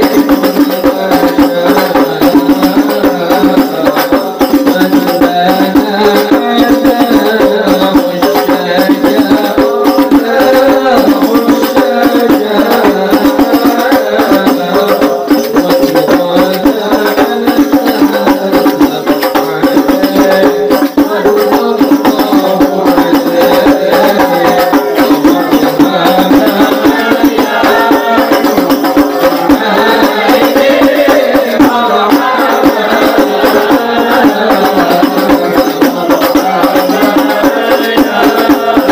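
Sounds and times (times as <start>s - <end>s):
frame drums: 0.0s - 38.9s
group singing: 0.0s - 38.9s.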